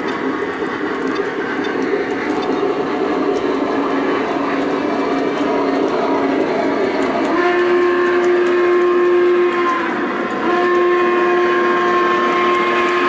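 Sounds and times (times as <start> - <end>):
model train running on track: 0.0 - 13.0
steam whistle blasts: 7.1 - 13.0.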